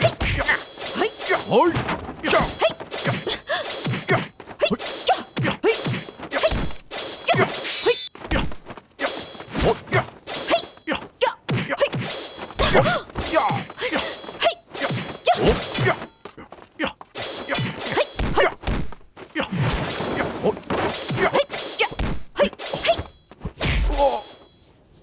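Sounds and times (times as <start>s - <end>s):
fighters grunting and shouting: 0.0s - 23.1s, 23.7s - 24.4s
punches and kicks landing: 5.4s - 7.5s, 17.6s - 24.2s.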